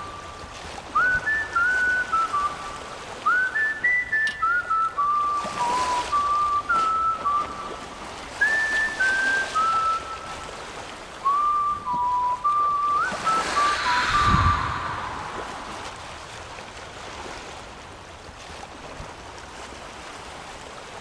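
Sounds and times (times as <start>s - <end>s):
person whistling a tune: 1.0s - 10.5s, 11.2s - 16.2s
rush of noise with low rumble: 13.1s - 17.9s.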